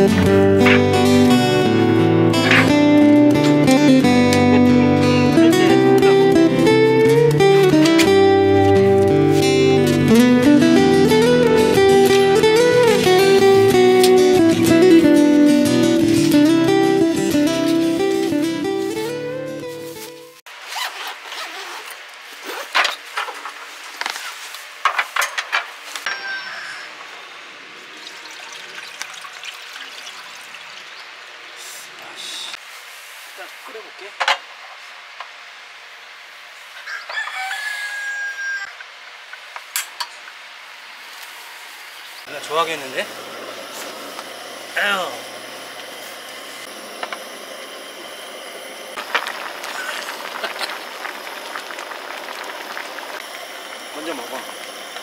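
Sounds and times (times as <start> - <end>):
acoustic guitar music: 0.0 - 20.4.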